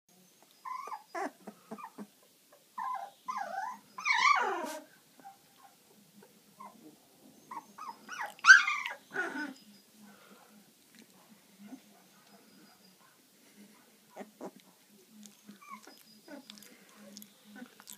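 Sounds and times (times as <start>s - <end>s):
puppies whining: 0.3s - 9.9s, 14.1s - 17.9s.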